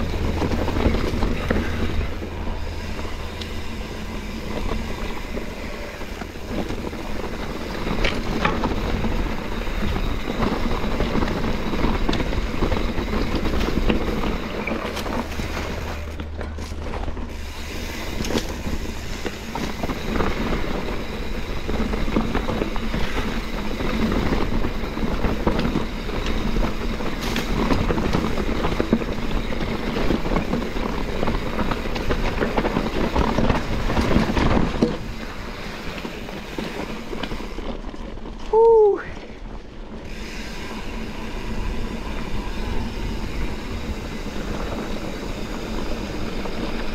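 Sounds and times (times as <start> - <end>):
mountain bike rattling: 0.0 - 46.9
tyres crunching on gravel: 0.0 - 46.9
wind rumble on microphone: 0.0 - 46.9.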